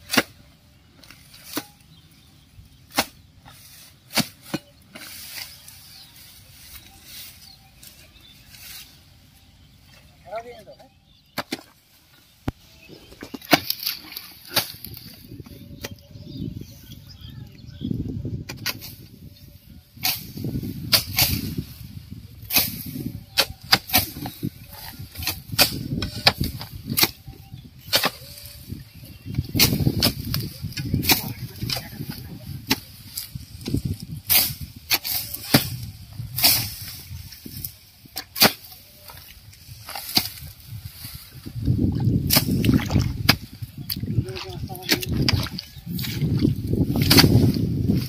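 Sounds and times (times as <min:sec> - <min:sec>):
grass rustling and scraping: 0:00.0 - 0:17.2, 0:18.0 - 0:48.0
hoe chopping into soil: 0:38.1 - 0:38.7, 0:46.9 - 0:47.7.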